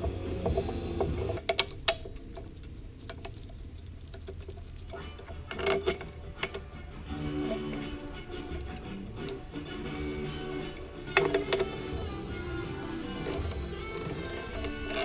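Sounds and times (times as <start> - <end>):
metallic clicks of tools: 0.5 - 6.7, 8.5 - 12.0, 13.1 - 15.0.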